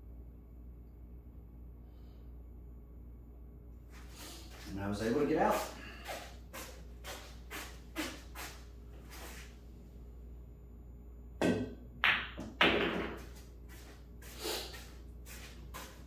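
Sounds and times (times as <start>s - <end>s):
cue and balls knocking: 11.4s - 13.4s.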